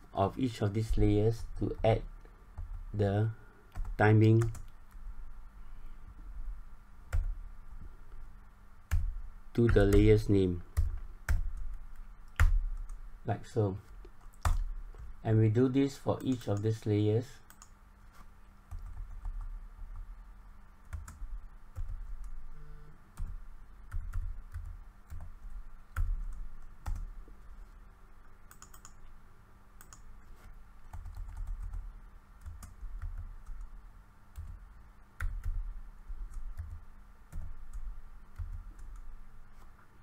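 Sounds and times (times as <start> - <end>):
faint steady hum: 0.0 - 40.0
keyboard typing: 3.7 - 5.0, 8.9 - 13.0, 14.2 - 15.1, 17.5 - 17.7, 18.7 - 20.0, 20.8 - 27.1, 28.5 - 29.1, 29.8 - 30.1, 30.9 - 33.8, 35.2 - 39.1.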